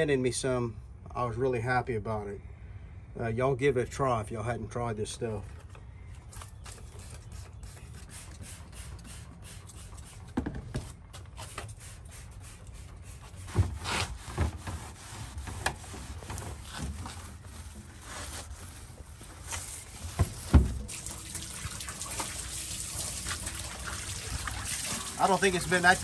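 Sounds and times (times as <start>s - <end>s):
scrubbing pad on steel: 11.3s - 20.9s.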